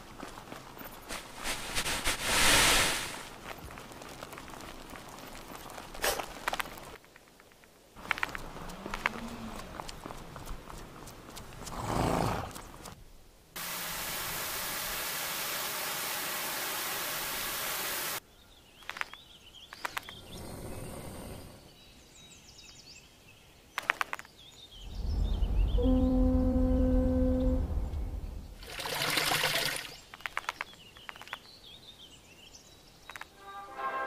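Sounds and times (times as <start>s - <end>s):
steady hiss: 0.9s - 8.7s, 12.6s - 18.2s
sharp clicks: 18.8s - 20.2s, 23.8s - 24.3s, 30.1s - 31.5s, 33.1s - 33.3s
loud low droning tone: 24.9s - 28.6s.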